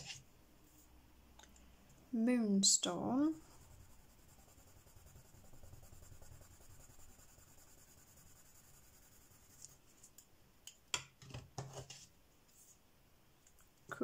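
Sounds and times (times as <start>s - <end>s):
pencil scratching on paper: 3.2s - 9.8s.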